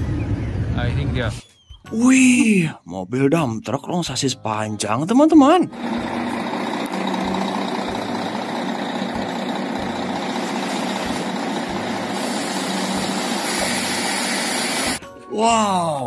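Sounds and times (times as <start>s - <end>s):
diesel engine running: 0.0s - 1.2s, 5.7s - 15.0s
sand unloading from truck: 5.8s - 15.0s.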